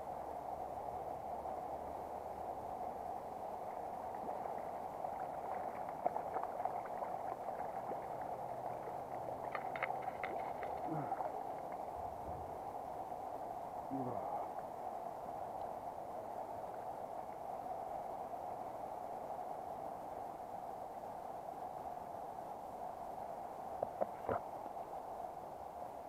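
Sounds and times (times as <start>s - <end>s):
river water running over stones: 2.7s - 13.1s
fish splashing at surface: 5.4s - 11.4s.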